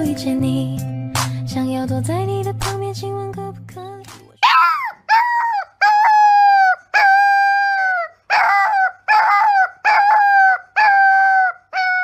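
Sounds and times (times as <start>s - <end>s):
pop song with singing: 0.0s - 4.4s
puppy howling: 4.4s - 12.0s.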